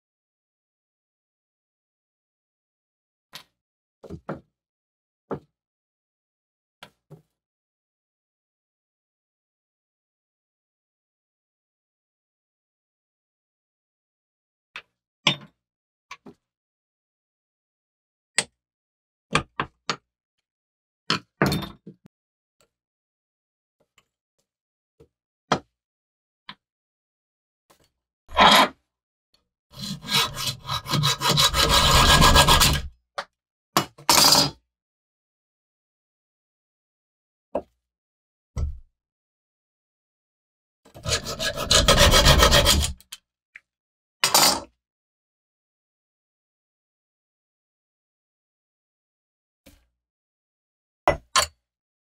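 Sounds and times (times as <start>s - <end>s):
hacksaw cutting steel: 29.8s - 32.9s, 41.0s - 43.0s.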